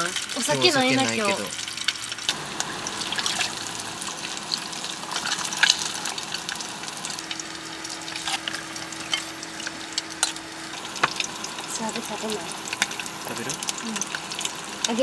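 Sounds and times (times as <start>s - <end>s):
fish deep-frying sizzle: 0.0s - 15.0s.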